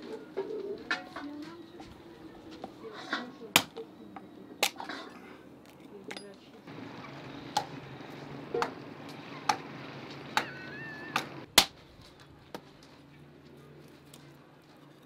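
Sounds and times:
hatchet chopping wood: 3.6s - 3.8s, 11.2s - 11.8s.

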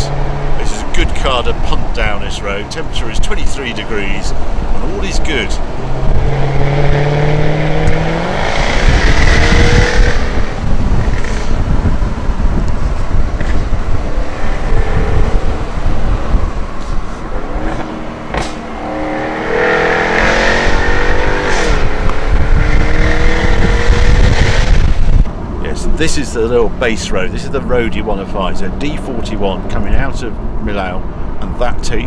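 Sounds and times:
road rumble: 0.0s - 32.0s
car engine accelerating: 5.6s - 25.7s.

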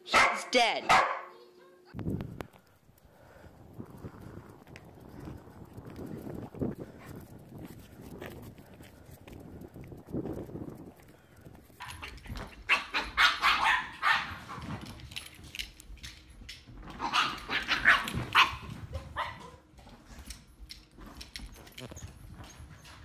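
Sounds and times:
dog barking: 0.1s - 1.4s, 12.7s - 14.6s, 17.0s - 19.7s.

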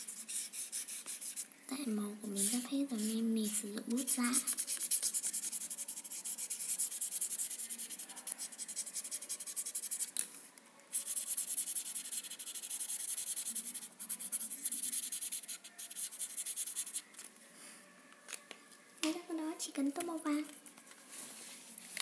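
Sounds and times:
marker scribbling on paper: 0.0s - 1.4s, 2.4s - 3.3s, 4.0s - 10.1s, 10.9s - 17.0s.

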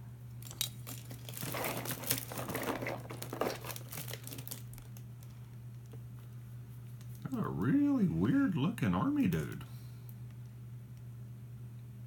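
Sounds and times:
plastic wrapping crinkling: 0.4s - 6.0s.

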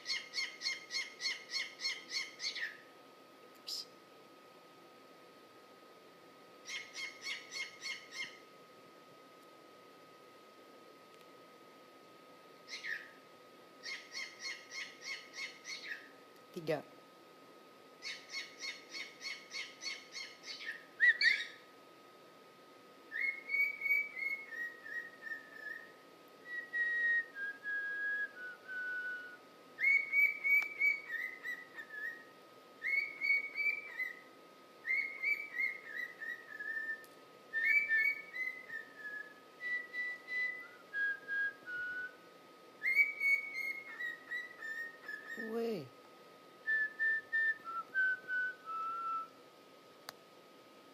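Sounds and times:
cockatiel chirping: 0.0s - 2.8s, 6.6s - 8.4s, 12.7s - 13.2s, 13.8s - 16.1s, 18.0s - 21.6s, 23.2s - 25.8s, 29.8s - 32.2s, 32.8s - 34.2s, 34.9s - 36.9s, 37.6s - 39.3s, 42.8s - 45.6s
cockatiel whistling: 0.0s - 2.8s, 6.7s - 8.4s, 12.7s - 13.2s, 13.8s - 16.1s, 18.0s - 21.6s, 23.1s - 34.2s, 34.8s - 42.2s, 42.8s - 45.6s, 46.6s - 49.3s.

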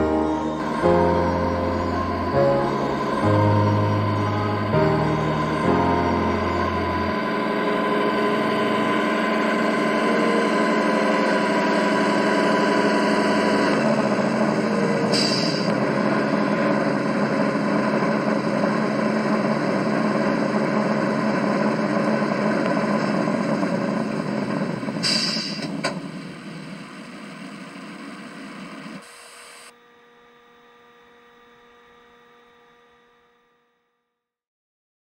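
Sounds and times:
faint hum: 0.0s - 24.2s
simulated diesel engine idling: 0.0s - 29.2s
short hiss: 15.2s - 15.7s, 25.0s - 25.8s.

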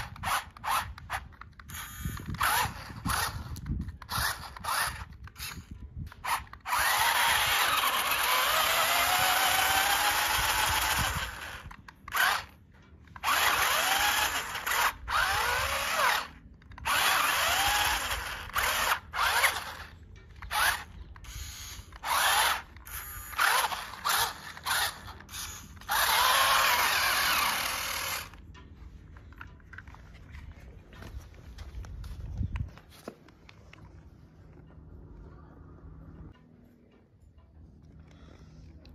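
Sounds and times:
toy car electric motor whining: 0.0s - 28.4s.

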